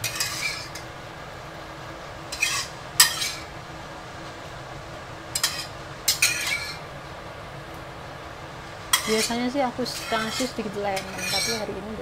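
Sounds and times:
spatula scraping a metal wok: 0.0s - 0.9s, 2.3s - 3.5s, 5.3s - 6.9s, 8.9s - 11.7s.

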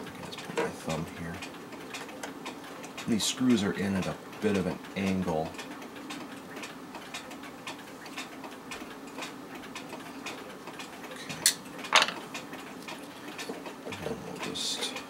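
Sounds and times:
pendulum clock ticking: 0.0s - 15.0s.

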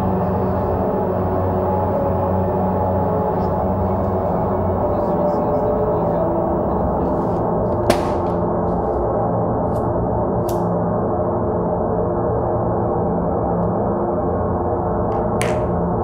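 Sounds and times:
gong-like low drone: 0.0s - 16.0s
sharp hit: 7.9s - 8.5s.

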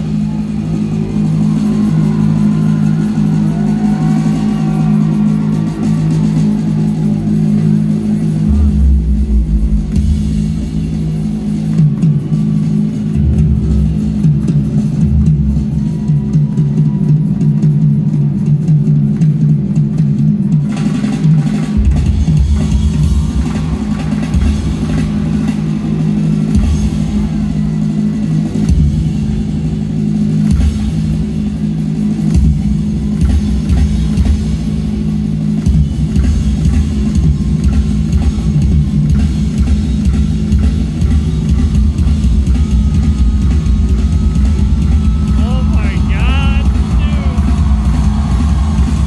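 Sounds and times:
drum kit solo: 35.8s - 49.0s.

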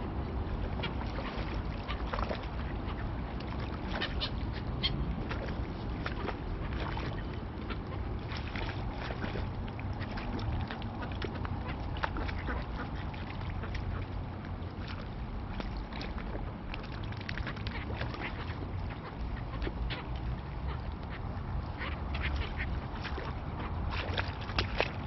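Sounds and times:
ducks quacking: 0.8s - 5.5s, 10.0s - 14.2s, 17.4s - 24.9s.

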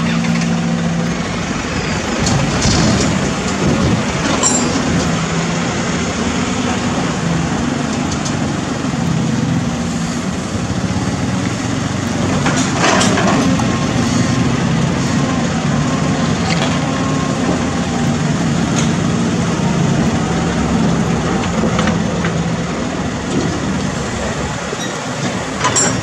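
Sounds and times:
diesel excavator engine: 0.0s - 26.0s
soil and rubble scraping: 2.2s - 5.0s.

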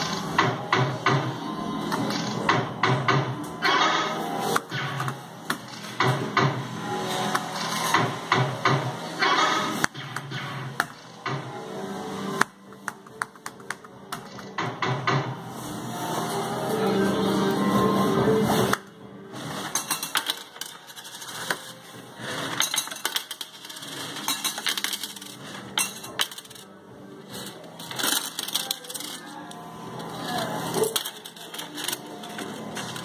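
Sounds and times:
electronic slot machine tune: 15.3s - 21.4s.

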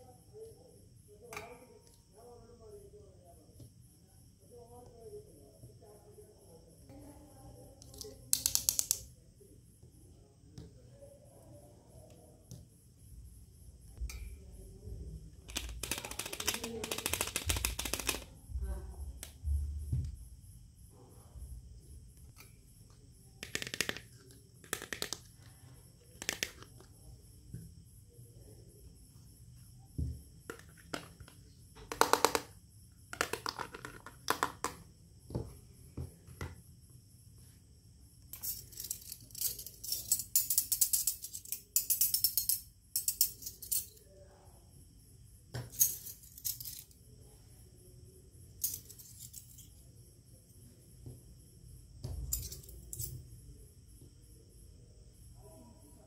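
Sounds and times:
small rattling clinks: 38.3s - 44.0s, 45.7s - 47.0s, 48.6s - 49.8s, 52.2s - 53.2s
toy kitchen pieces clinking: 38.4s - 43.9s.

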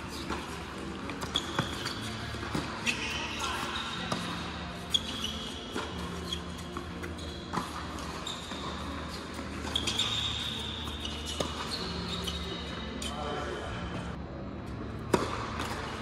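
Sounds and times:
sneakers squeaking on court: 0.0s - 14.2s
tennis ball bouncing: 0.1s - 13.1s, 15.0s - 16.0s
racket striking tennis ball: 5.6s - 11.9s, 15.1s - 16.0s.

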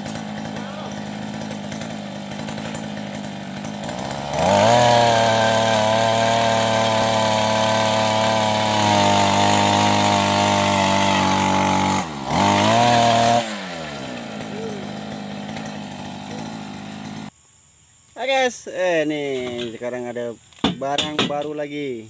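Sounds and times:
earth auger engine revving: 0.0s - 17.3s.

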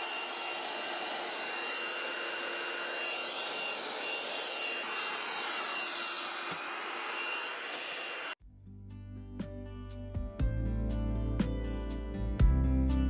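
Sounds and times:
robot vacuum running: 0.0s - 8.4s.

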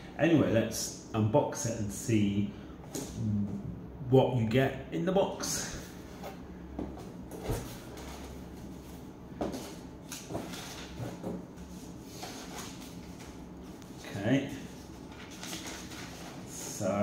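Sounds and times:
cardboard and paper rustling: 9.4s - 13.4s, 14.0s - 16.8s.

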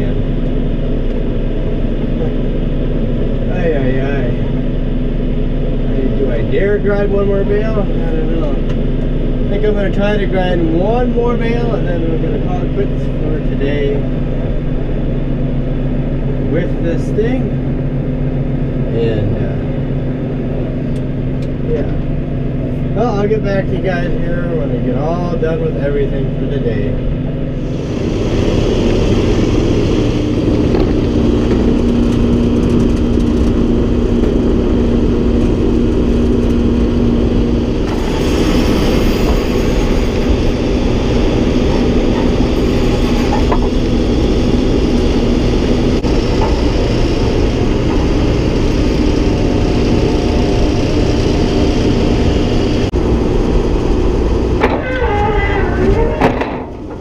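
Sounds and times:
hay grinder grinding: 27.6s - 57.0s
tractor engine under load: 27.6s - 57.0s.

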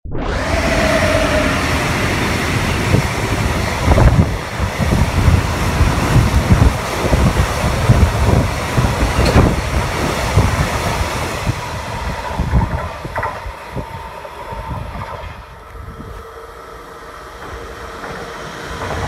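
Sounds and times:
freight train wheels rumbling on rails: 0.4s - 19.0s.

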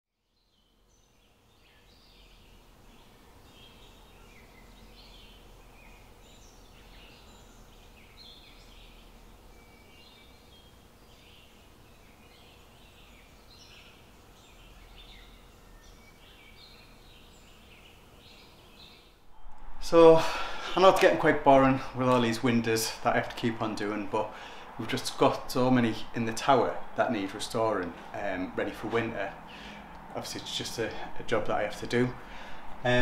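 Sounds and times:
small birds chirping and singing: 0.2s - 19.3s, 20.6s - 33.0s
low steady hum: 0.6s - 33.0s.

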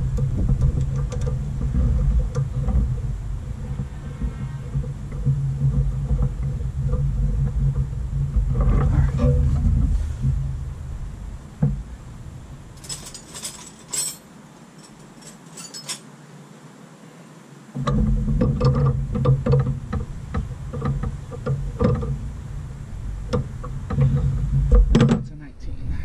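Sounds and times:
low rumble: 0.0s - 13.7s, 18.0s - 26.0s
metal hand tools clinking: 12.8s - 16.1s.

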